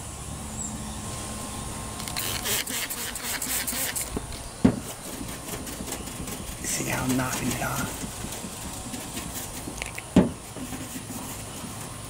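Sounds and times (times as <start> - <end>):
spray bottle hissing spurts: 2.0 - 4.2.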